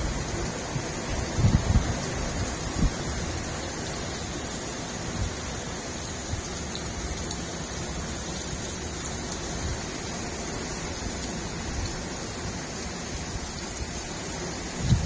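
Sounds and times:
heavy rain on grass and paving: 0:00.0 - 0:15.0.

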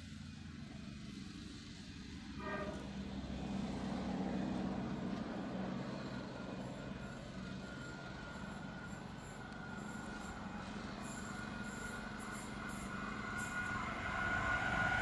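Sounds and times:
train engine drone: 0:00.0 - 0:15.0
high whine: 0:05.7 - 0:15.0.

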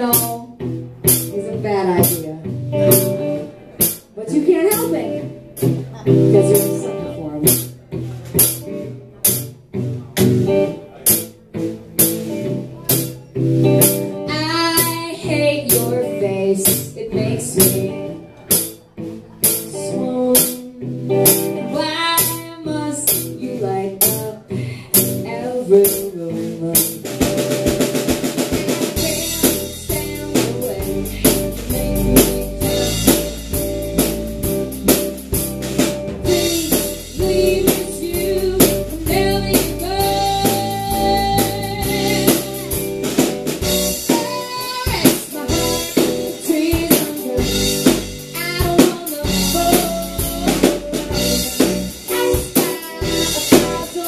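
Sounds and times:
woman singing: 0:00.0 - 0:00.6, 0:01.3 - 0:02.5, 0:04.2 - 0:07.6, 0:13.8 - 0:18.5, 0:19.4 - 0:33.4, 0:36.2 - 0:54.0
drum kit: 0:00.0 - 0:54.0
electric guitar: 0:00.0 - 0:54.0.

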